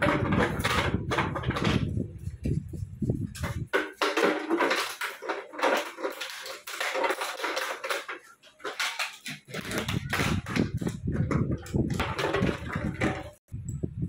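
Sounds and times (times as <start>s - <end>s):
plastic bottle crinkling: 3.3s - 13.4s.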